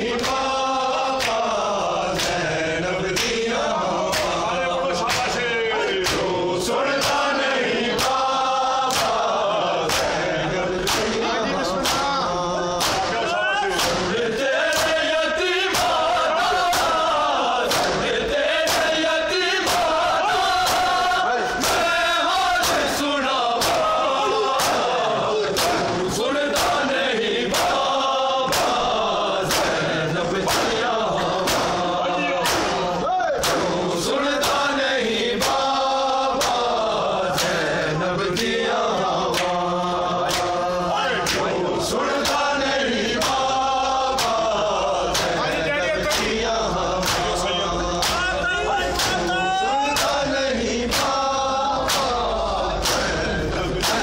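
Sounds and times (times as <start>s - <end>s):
men chanting in unison: 0.0s - 54.0s
hands slapping chests: 0.2s - 0.5s, 1.1s - 1.5s, 2.1s - 2.5s, 3.1s - 3.4s, 4.1s - 4.4s, 5.0s - 5.4s, 6.0s - 6.3s, 7.0s - 12.2s, 12.8s - 13.2s, 13.8s - 15.0s, 15.7s - 19.0s, 19.6s - 21.0s, 21.6s - 22.0s, 22.6s - 23.0s, 23.6s - 26.9s, 27.5s - 27.9s, 28.5s - 33.8s, 34.4s - 34.7s, 35.4s - 37.7s, 39.3s - 39.6s, 40.2s - 40.6s, 41.2s - 41.5s, 42.2s - 42.5s, 43.1s - 43.5s, 44.2s - 44.5s, 45.1s - 46.4s, 47.0s - 47.4s, 48.0s - 48.3s, 49.0s - 49.4s, 50.0s - 50.3s, 50.9s - 52.2s, 52.8s - 54.0s.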